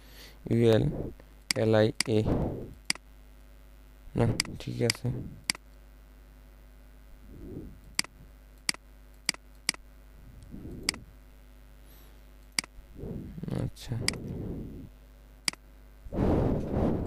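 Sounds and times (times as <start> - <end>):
computer mouse buttons clicking: 4.4 - 5.6.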